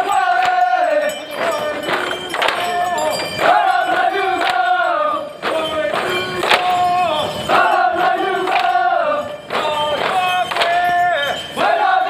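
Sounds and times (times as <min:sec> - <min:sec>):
group chanting in unison: 0:00.0 - 0:12.0
bamboo poles knocking: 0:01.4 - 0:02.8, 0:09.5 - 0:10.9.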